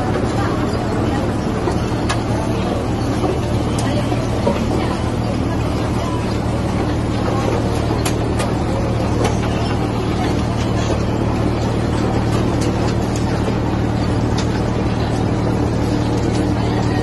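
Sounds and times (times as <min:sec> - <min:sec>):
harvester mechanical drone: 0:00.0 - 0:17.0.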